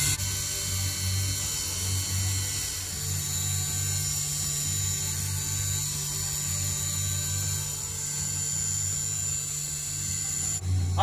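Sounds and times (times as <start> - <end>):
high-speed spindle whine: 0.0 - 11.0
low throbbing: 9.6 - 11.0.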